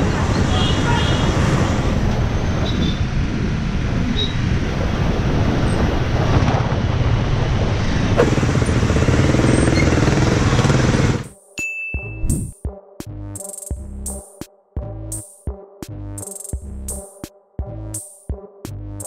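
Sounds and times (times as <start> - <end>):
road and traffic noise: 0.0 - 11.4
motorcycle engine running: 8.2 - 11.3.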